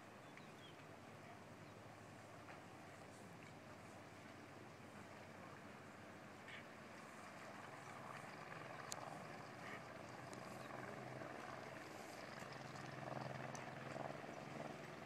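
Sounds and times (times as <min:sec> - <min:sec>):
faint clicks: 0:08.8 - 0:09.1, 0:12.8 - 0:13.7.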